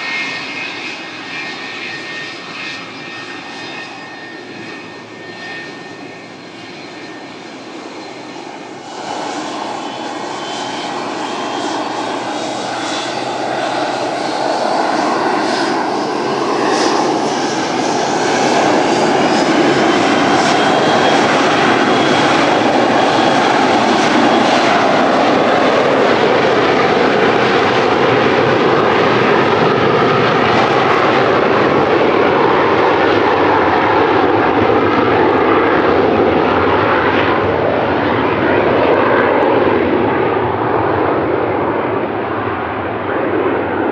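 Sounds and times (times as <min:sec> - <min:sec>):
jet engines spooling up: 0:00.0 - 0:43.9
rising engine whine: 0:00.0 - 0:43.9.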